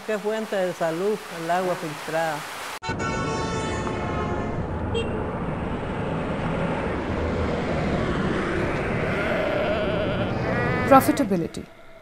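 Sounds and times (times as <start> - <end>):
low rumbling noise: 3.9 - 12.0
faint rising tone: 4.7 - 12.0.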